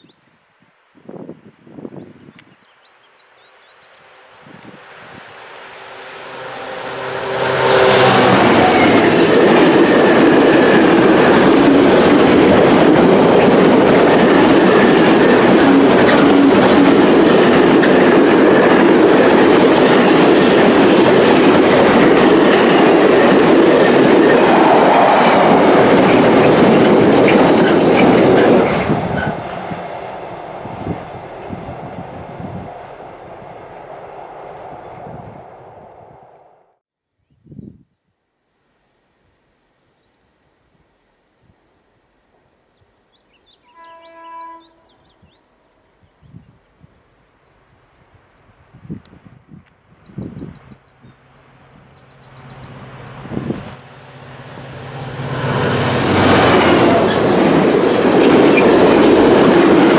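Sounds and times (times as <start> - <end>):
diesel locomotive engine passing: 3.5 - 36.8, 50.7 - 59.9
train wheels clicking over rails: 7.6 - 30.2, 54.6 - 59.9.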